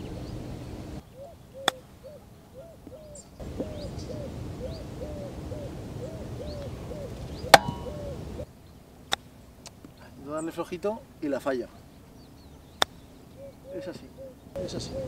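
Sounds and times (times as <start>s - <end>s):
bird hooting: 1.0s - 8.5s, 12.9s - 15.0s.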